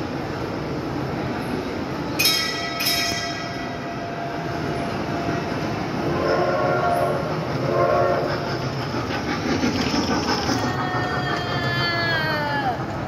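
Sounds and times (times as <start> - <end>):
road train driving past: 0.0 - 13.0.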